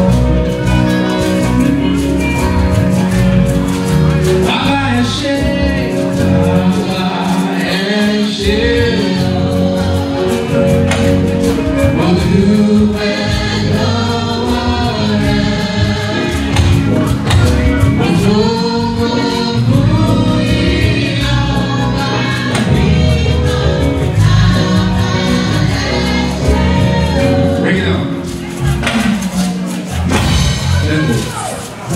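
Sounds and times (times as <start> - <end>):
man singing lead: 3.0 - 29.7
women's choir singing: 12.6 - 16.7, 18.4 - 27.6.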